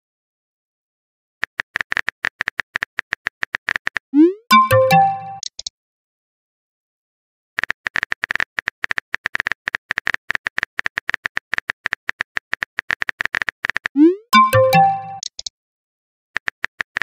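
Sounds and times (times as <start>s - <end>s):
chiming tones: 4.2s - 5.4s, 14.0s - 15.2s.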